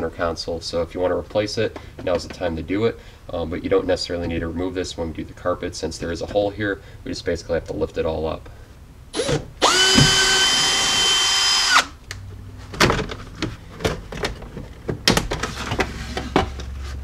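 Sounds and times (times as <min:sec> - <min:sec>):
power drill whining: 0:09.2 - 0:12.0.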